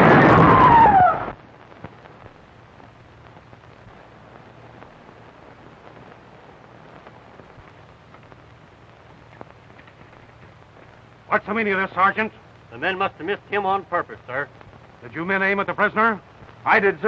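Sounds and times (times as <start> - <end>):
old film soundtrack hiss: 0.0 - 17.0.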